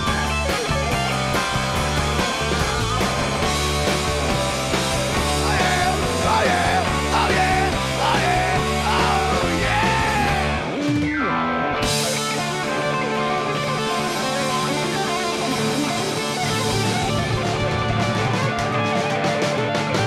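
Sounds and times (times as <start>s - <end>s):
electric guitar: 0.0s - 20.0s
rock band playing: 0.0s - 20.0s
person singing: 5.2s - 10.7s.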